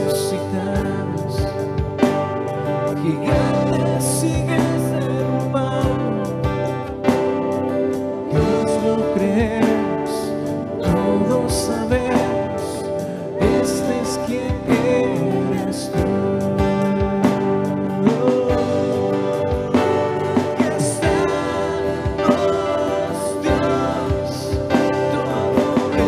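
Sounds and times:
keyboard: 0.0s - 26.0s
strummed acoustic guitar: 0.0s - 26.0s
people singing: 8.3s - 26.0s.

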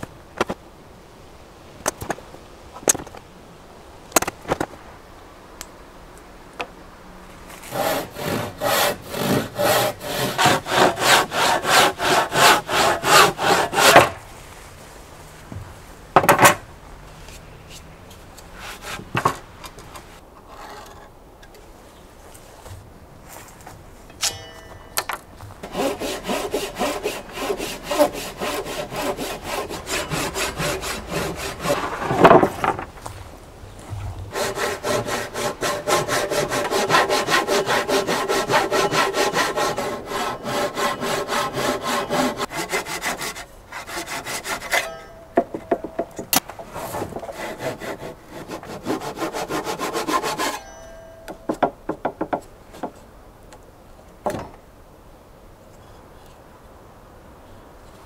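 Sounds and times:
handsaw cutting wood: 7.6s - 14.2s, 25.6s - 32.3s, 34.3s - 44.9s, 46.7s - 50.6s.

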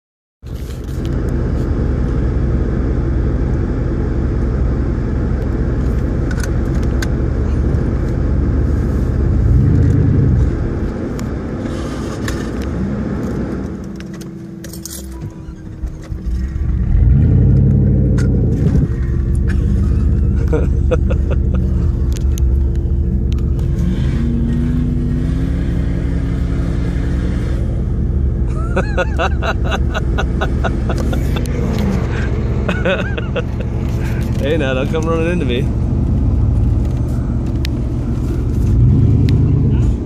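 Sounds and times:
engines revving: 5.6s - 14.4s, 15.7s - 40.0s
light rattling and clinking: 14.6s - 16.1s.

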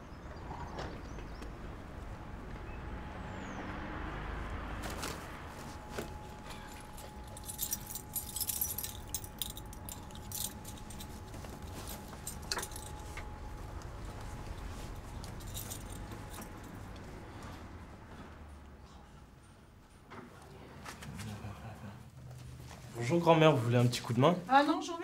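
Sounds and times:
keys jangling: 6.1s - 13.3s, 14.1s - 17.1s.

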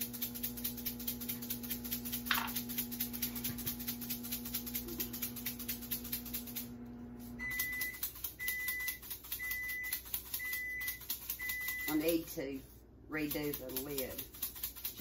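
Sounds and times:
microwave oven humming: 0.0s - 11.8s
microwave beeping: 6.7s - 12.0s.

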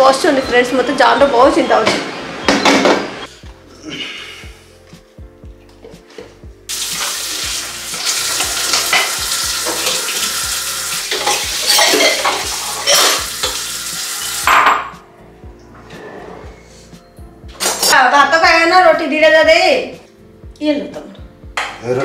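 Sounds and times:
tap water splashing into sink: 6.7s - 10.4s
crockery clinking: 11.1s - 13.6s, 17.5s - 18.0s.

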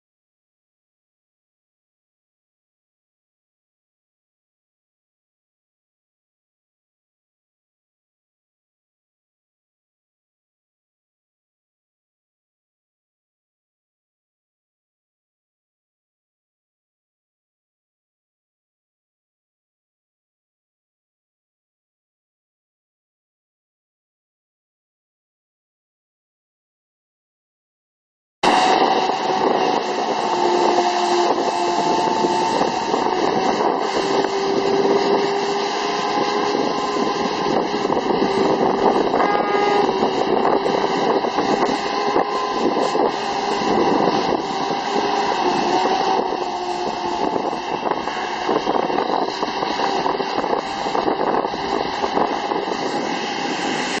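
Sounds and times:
truck engine hum: 28.5s - 54.0s.

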